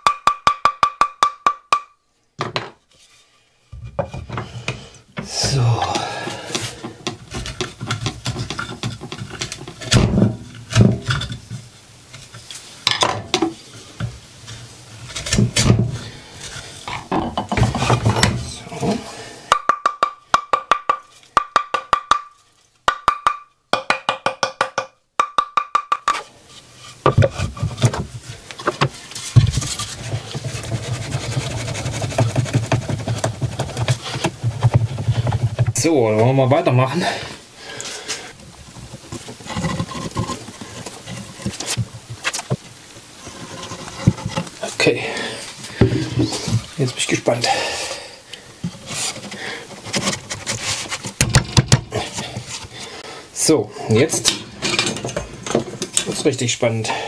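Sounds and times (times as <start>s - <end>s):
wooden mallet knocking wood: 0.0s - 2.7s, 19.5s - 22.3s, 22.9s - 26.2s.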